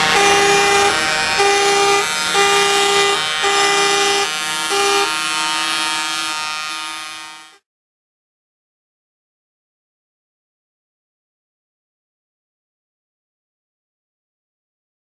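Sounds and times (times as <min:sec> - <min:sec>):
lorries passing: 0:00.0 - 0:03.5
truck air horn blasts: 0:00.0 - 0:07.6.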